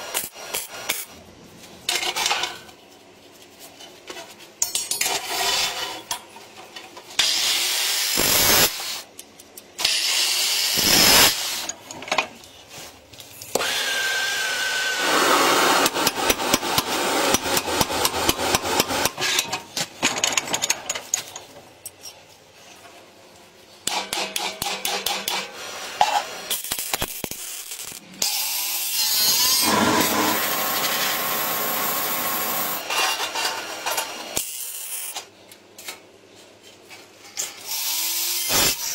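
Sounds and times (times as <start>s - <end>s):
harsh metal cutting and grinding: 7.2s - 8.9s, 9.8s - 11.7s, 26.5s - 33.3s, 37.7s - 38.9s.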